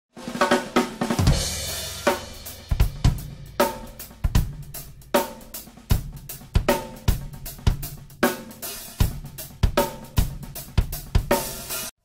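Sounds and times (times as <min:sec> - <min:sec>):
bass drum and snare beat: 0:00.1 - 0:11.9
tom drum fill: 0:00.2 - 0:11.9.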